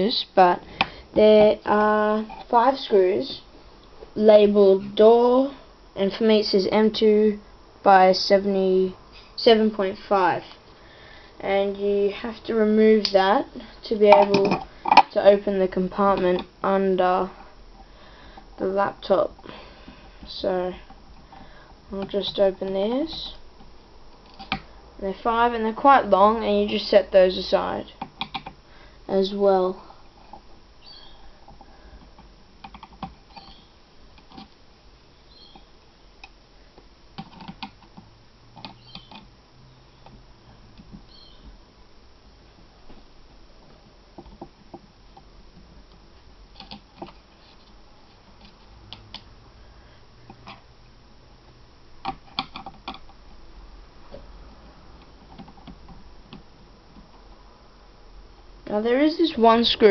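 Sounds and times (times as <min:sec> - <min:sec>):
faint high squeaks: 0:30.8 - 0:31.3, 0:35.3 - 0:35.7, 0:41.1 - 0:41.5.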